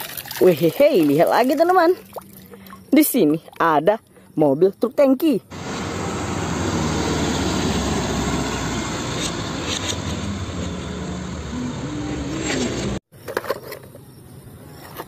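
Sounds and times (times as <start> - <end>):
road and traffic rumble: 5.3 - 15.0
truck diesel engine running: 5.5 - 13.0.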